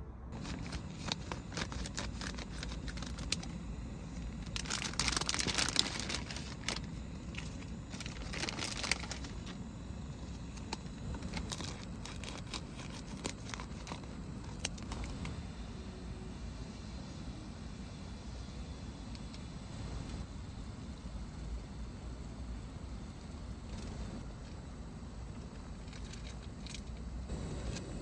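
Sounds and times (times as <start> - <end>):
packaging crinkling and tearing: 0.4 - 3.5, 4.3 - 9.6, 10.4 - 15.3.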